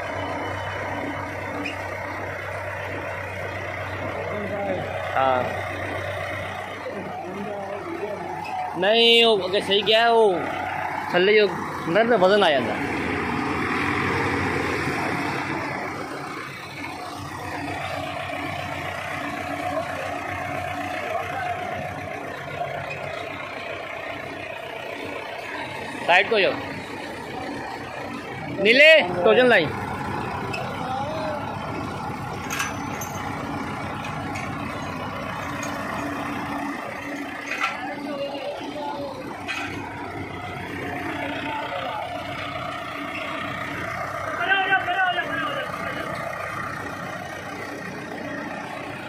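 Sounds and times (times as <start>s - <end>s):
tractor diesel engine running: 0.0s - 49.0s
light clinks: 32.4s - 33.4s.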